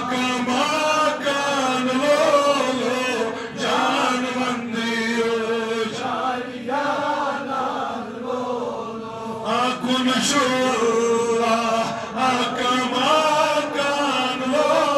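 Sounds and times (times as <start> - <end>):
man chanting devotional song: 0.0 - 6.5, 9.2 - 14.9.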